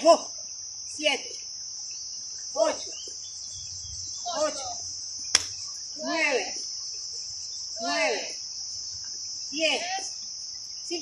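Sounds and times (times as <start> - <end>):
insects chirring: 0.0 - 11.0
woman calling out: 4.3 - 4.8, 6.0 - 6.6, 7.8 - 8.3
sharp click: 5.4 - 5.6.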